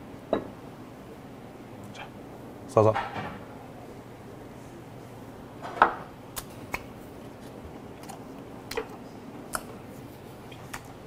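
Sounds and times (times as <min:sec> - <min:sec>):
chewing crunches: 0:06.4 - 0:09.8.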